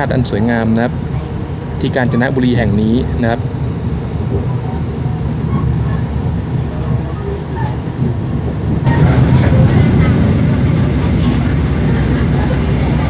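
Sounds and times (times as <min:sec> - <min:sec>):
train wheels rumbling on track: 0:00.0 - 0:13.0.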